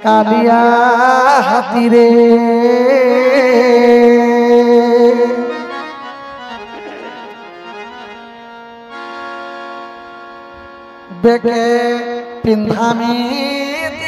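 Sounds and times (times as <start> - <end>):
man singing: 0.0 - 6.1, 11.1 - 14.0
harmonium: 0.0 - 14.0.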